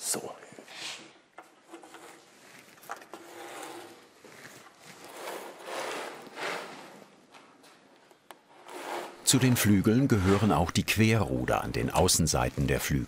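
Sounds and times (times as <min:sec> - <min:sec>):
steel cable scraping through tubes: 0:01.6 - 0:07.1, 0:08.5 - 0:13.0.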